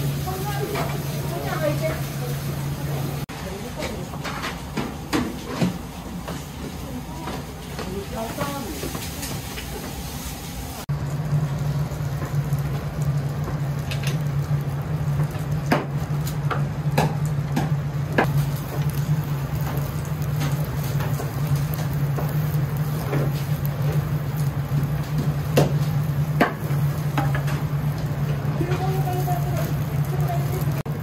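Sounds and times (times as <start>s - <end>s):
steady low hum: 10.9s - 31.0s.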